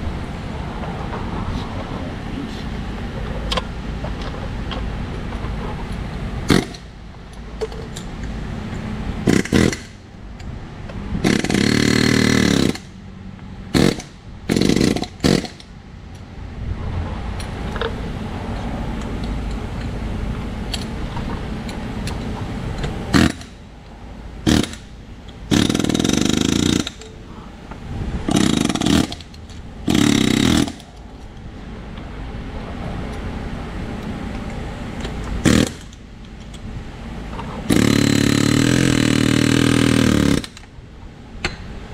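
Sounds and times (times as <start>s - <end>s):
air hammer hammering steel: 6.5s - 6.9s, 9.2s - 10.0s, 11.2s - 13.0s, 13.7s - 15.7s, 23.1s - 23.6s, 24.5s - 24.9s, 25.5s - 27.3s, 28.3s - 30.9s, 35.4s - 36.0s, 37.7s - 40.7s.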